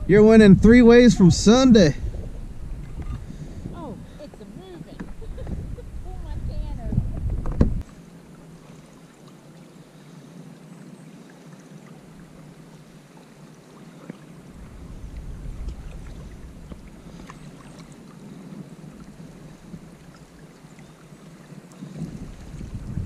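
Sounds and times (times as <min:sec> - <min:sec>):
wind rumble on microphone: 0:00.0 - 0:07.9, 0:14.5 - 0:20.4, 0:21.8 - 0:23.0
faint water sounds: 0:00.0 - 0:23.0.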